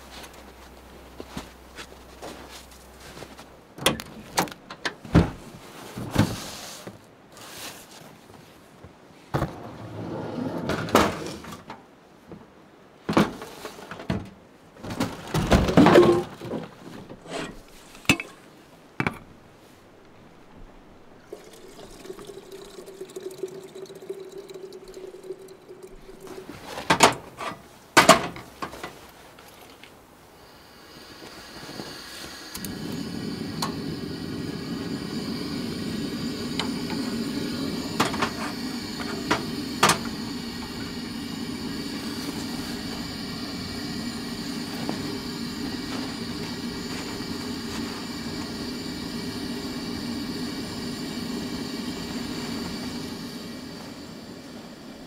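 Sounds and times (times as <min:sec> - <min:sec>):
steady hum: 0:20.3 - 0:27.0, 0:30.2 - 0:55.0
water pouring: 0:21.2 - 0:27.4, 0:32.5 - 0:55.0.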